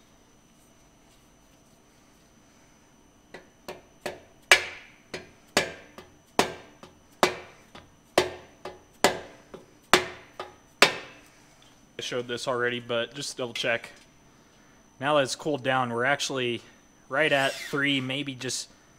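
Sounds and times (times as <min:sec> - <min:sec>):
mallet striking metal sleeve: 0:03.4 - 0:07.5, 0:08.2 - 0:09.4, 0:10.0 - 0:11.2.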